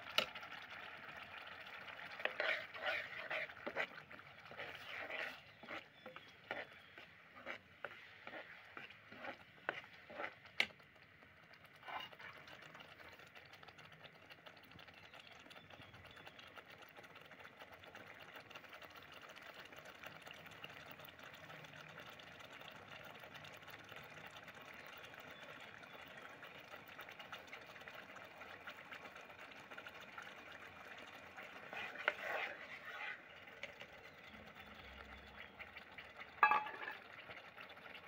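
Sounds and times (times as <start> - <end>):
gravy bubbling and sizzling: 0.0 - 38.0
spatula scraping metal pot: 1.7 - 10.7, 11.7 - 12.9, 30.7 - 33.8, 36.4 - 37.1.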